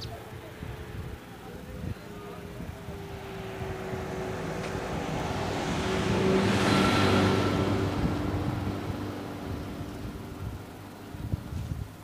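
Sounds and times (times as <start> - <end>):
vehicle driving past: 2.9 - 10.3.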